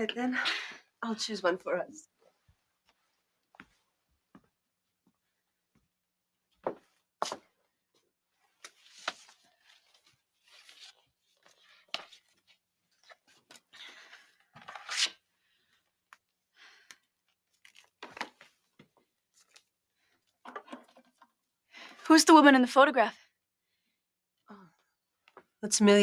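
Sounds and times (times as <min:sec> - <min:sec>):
vinyl records and sleeves rustling: 0:08.4 - 0:15.1.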